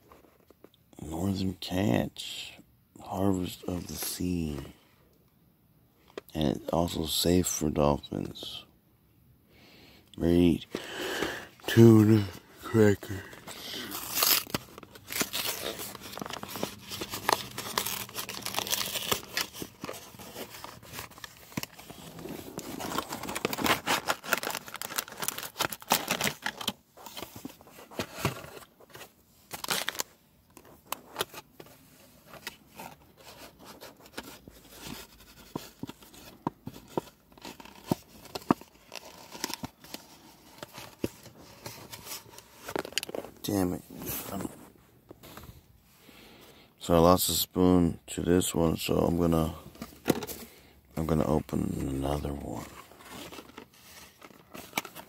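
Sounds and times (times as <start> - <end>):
plastic packaging crinkling: 10.8 - 28.7, 29.5 - 31.3, 51.7 - 55.0.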